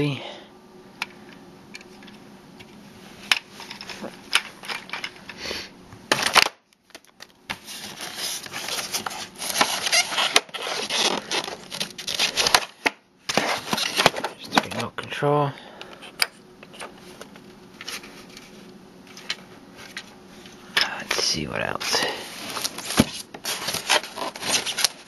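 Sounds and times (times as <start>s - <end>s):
plastic packaging crinkling: 6.2s - 12.8s, 22.4s - 25.0s.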